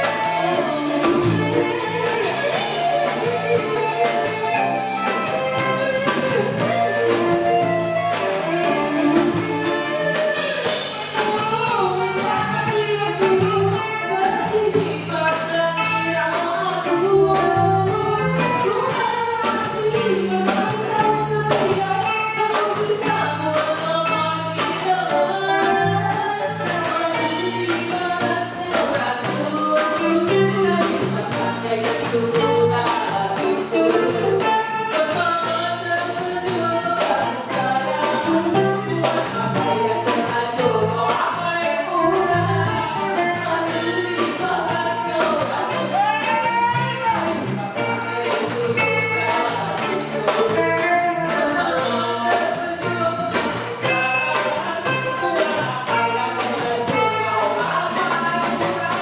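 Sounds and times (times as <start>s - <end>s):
bass line: 0.0s - 59.0s
drum kit beat: 0.0s - 59.0s
electric guitars: 0.0s - 59.0s
woman singing: 0.0s - 59.0s.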